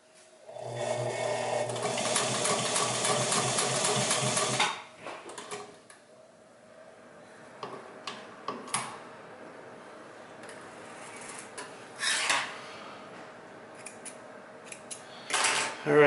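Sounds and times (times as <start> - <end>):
motor hum: 0.5 - 4.7
sewing machine stitching rapidly: 0.8 - 4.8.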